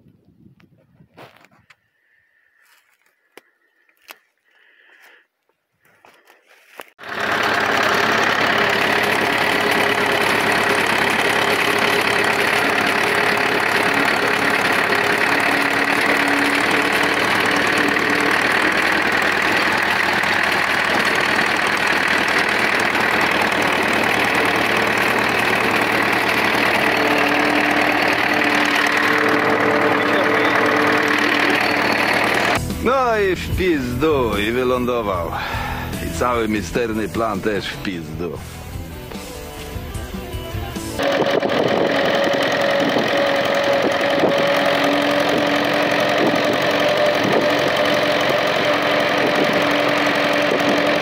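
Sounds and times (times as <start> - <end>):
tractor diesel engine running: 5.9 - 51.0.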